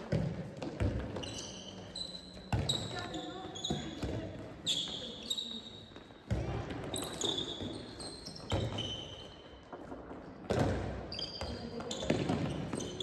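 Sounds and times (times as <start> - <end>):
ball bouncing on gym floor: 0.0 - 13.0
sneakers squeaking: 0.0 - 13.0.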